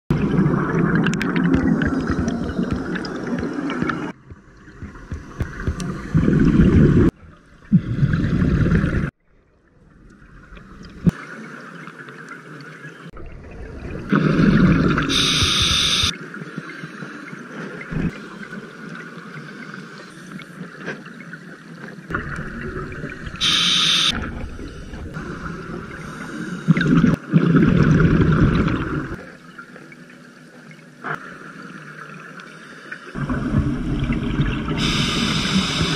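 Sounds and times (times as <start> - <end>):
short high hisses: 15.1 - 16.1, 23.4 - 24.2, 34.8 - 35.9
regulator exhaled air bubbling: 33.2 - 35.9.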